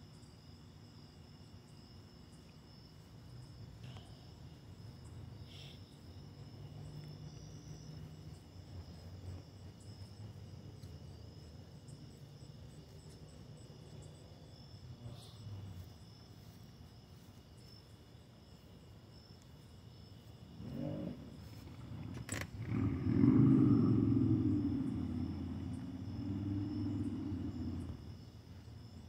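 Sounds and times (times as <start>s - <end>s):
night insects chirping: 0.0s - 29.0s
distant traffic hum: 2.3s - 29.0s
vehicle approaching: 20.6s - 28.2s.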